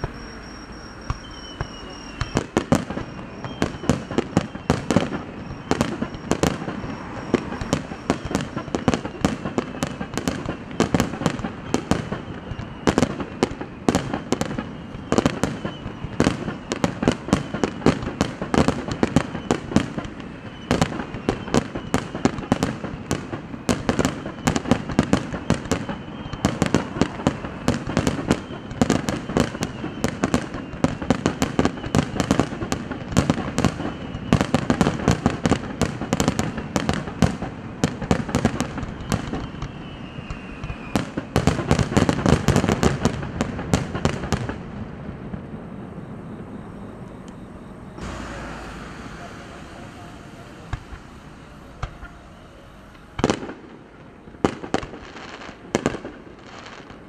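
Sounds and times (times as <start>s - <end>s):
firework bangs: 0.0s - 57.0s
continuous rumble: 42.9s - 56.3s.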